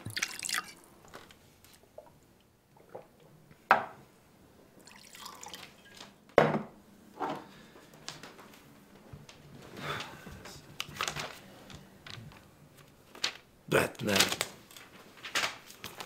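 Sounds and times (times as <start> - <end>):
liquid pouring into glass: 0.0 - 0.9, 4.8 - 6.0.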